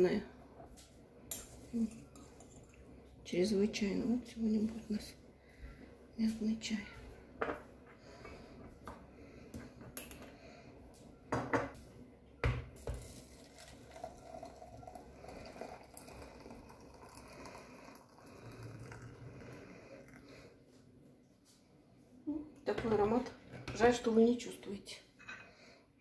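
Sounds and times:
hot water pouring into teapot: 0:12.9 - 0:20.4.

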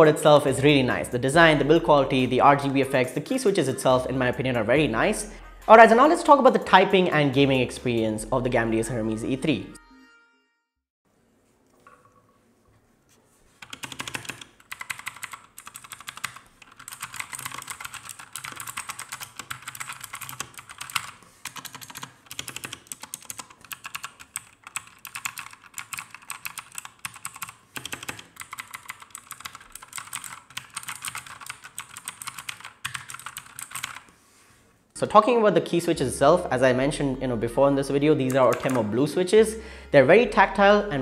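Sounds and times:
fast mechanical keyboard typing: 0:13.6 - 0:34.1, 0:38.2 - 0:38.9.

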